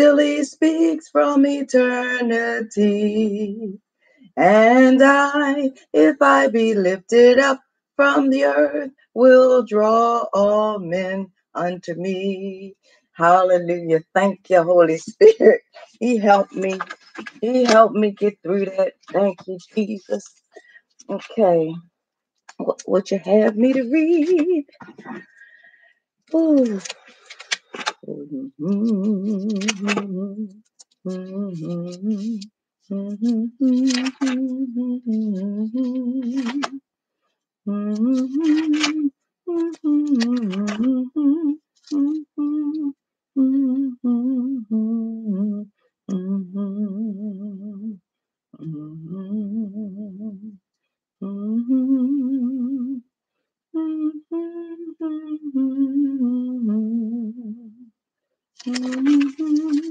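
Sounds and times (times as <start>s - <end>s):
woman humming: 28.0s - 36.8s, 48.6s - 50.6s
woman humming a slow tune: 37.7s - 48.0s, 48.6s - 50.6s, 51.2s - 53.0s, 53.8s - 57.9s.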